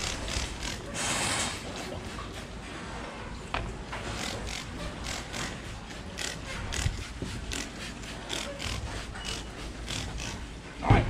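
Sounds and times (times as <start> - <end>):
spray bottle squirting: 0.0 - 2.0, 4.0 - 10.5.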